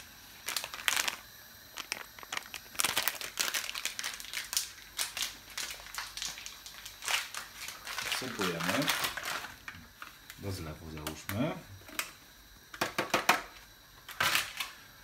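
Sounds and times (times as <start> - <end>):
packet crinkling: 0.0 - 12.1.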